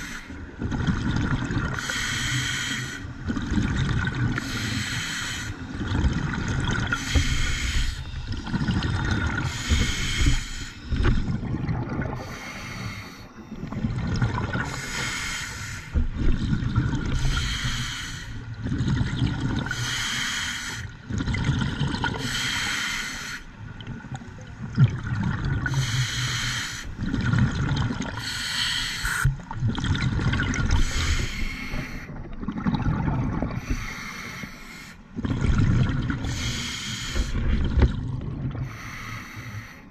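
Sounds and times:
gurgle of exhaled bubbles: 0.6s - 1.8s, 3.2s - 4.5s, 5.7s - 12.6s, 13.5s - 15.1s, 16.0s - 17.5s, 18.5s - 19.9s, 21.0s - 22.4s, 23.7s - 25.9s, 26.9s - 28.3s, 29.2s - 34.0s, 35.1s - 38.8s
regulator air hiss: 7.0s - 8.2s, 22.3s - 23.4s.

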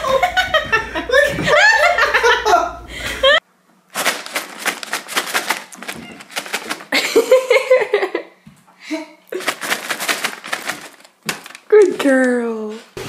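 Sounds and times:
cat claws on hardwood floor: 4.0s - 6.9s.

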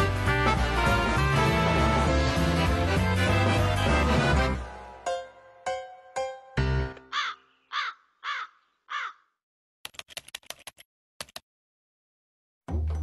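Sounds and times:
music: 0.0s - 7.2s, 12.6s - 13.0s
crow cawing: 7.1s - 9.4s
sharp typing clicks: 9.8s - 11.4s.

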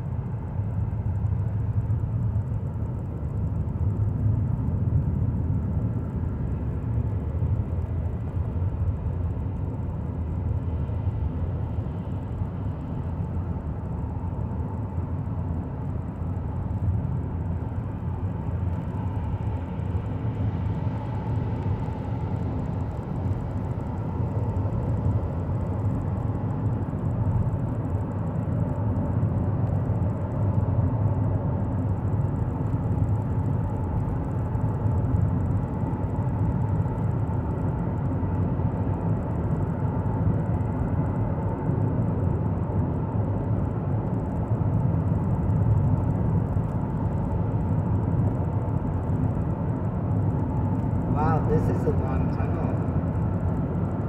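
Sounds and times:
car tyre and engine rumble: 0.0s - 54.0s.

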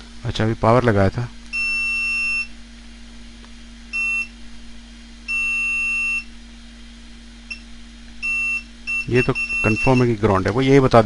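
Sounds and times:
multimeter beeps: 1.5s - 2.5s, 3.9s - 4.3s, 5.3s - 6.3s, 7.5s - 10.2s.

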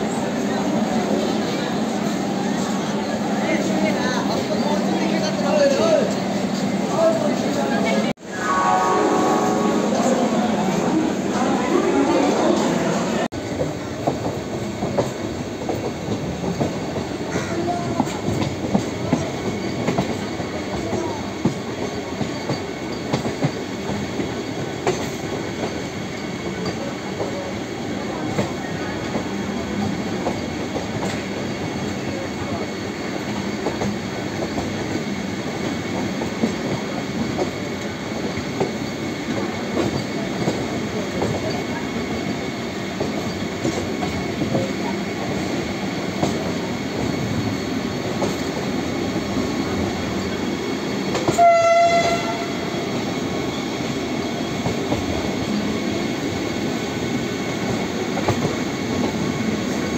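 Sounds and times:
train horn blast: 8.2s - 10.6s, 51.3s - 52.6s
train wheels rumbling on rails: 9.9s - 59.9s.

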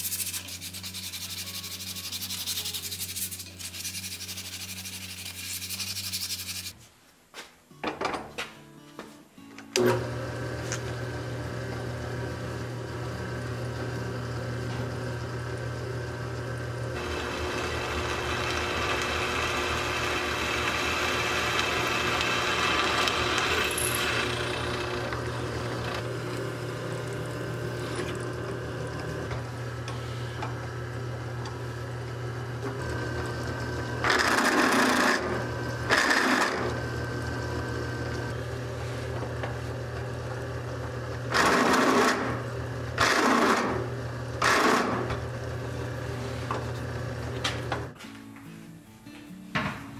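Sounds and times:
drill press motor humming: 9.8s - 46.0s
drill bit boring through metal: 17.0s - 26.2s.

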